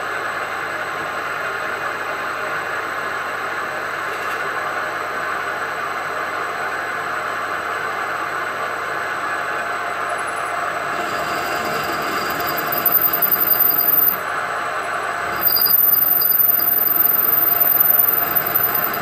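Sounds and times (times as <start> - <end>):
high thin drill squeal: 10.2 - 14.3, 15.2 - 19.0
milling machine cutting noise: 10.4 - 14.3, 15.1 - 19.0.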